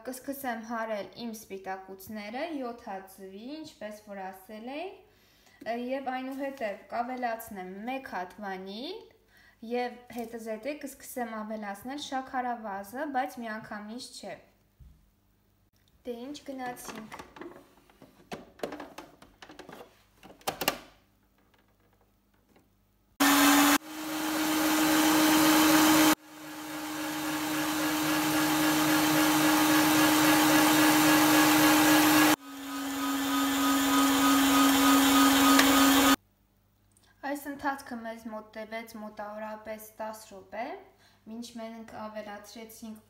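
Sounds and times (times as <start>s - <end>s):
clicks and knocks: 16.7s - 22.7s
stand mixer motor whirring: 23.2s - 36.2s.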